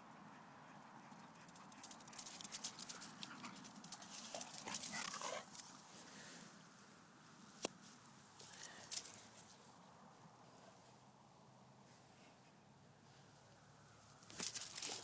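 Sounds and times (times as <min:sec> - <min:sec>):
dog sounds: 0:00.3 - 0:05.6
dog paws running on grass: 0:01.1 - 0:06.4, 0:14.3 - 0:15.0.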